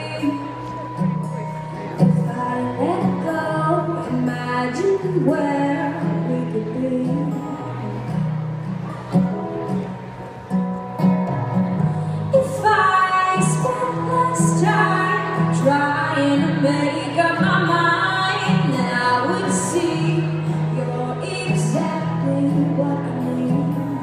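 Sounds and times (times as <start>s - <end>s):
woman singing: 0.0s - 0.9s, 2.0s - 7.7s, 12.2s - 24.0s
guitar: 0.0s - 24.0s.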